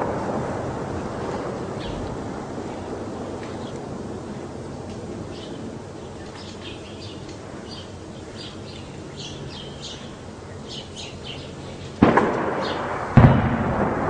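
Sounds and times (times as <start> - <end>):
loud explosion: 0.0 - 3.3, 12.0 - 14.0
low background rumble: 0.0 - 14.0
small birds chirping: 1.7 - 3.9, 5.2 - 12.0.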